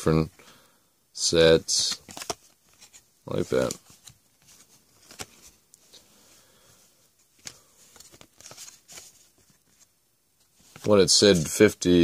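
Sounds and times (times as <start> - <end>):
trading cards rustling: 1.7 - 6.2, 7.2 - 9.9, 10.5 - 11.8.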